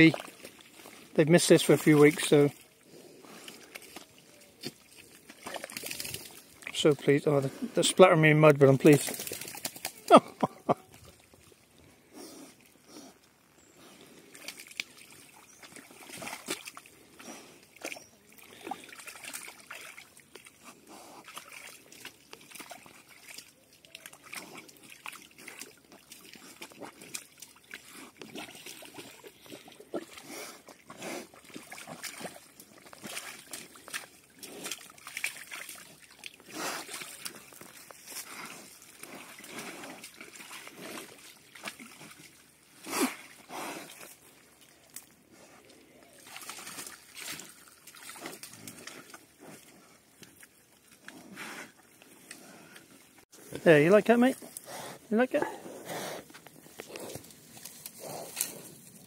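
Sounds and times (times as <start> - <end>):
pigs splashing in muddy water: 0.0 - 59.0.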